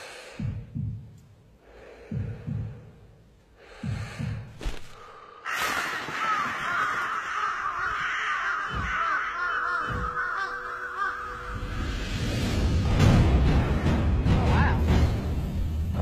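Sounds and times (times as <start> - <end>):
deep thuds: 0.4 - 1.2, 2.0 - 3.0, 3.7 - 5.0
low thumps: 0.4 - 1.3, 2.0 - 3.2
crows cawing: 5.4 - 11.9.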